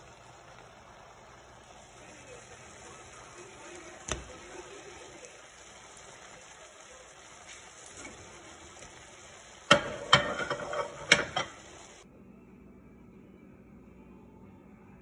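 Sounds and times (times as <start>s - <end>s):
utensil clinking against pan: 9.7s - 11.7s.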